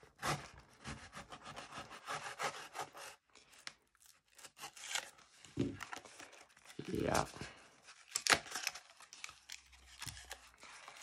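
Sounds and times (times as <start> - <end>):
knife cutting cardboard: 0.0 - 3.6, 4.3 - 5.2.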